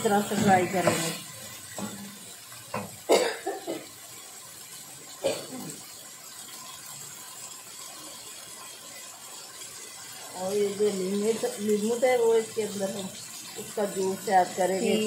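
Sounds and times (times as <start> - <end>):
person coughing: 3.1 - 3.9, 5.2 - 5.8.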